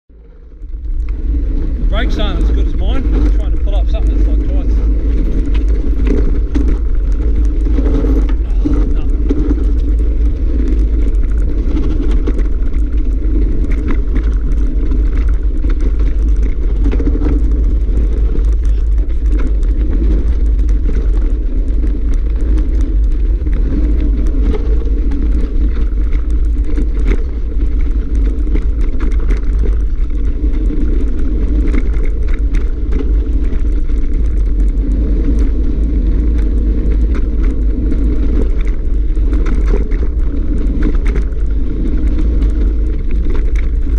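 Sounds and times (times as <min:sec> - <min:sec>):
wind and tyre rumble: 0:00.0 - 0:43.9
bike rattling over stones: 0:00.1 - 0:43.9.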